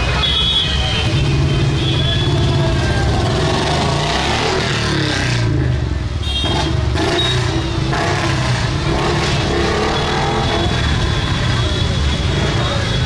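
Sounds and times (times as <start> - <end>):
motorcycle engines droning: 0.0 - 13.0.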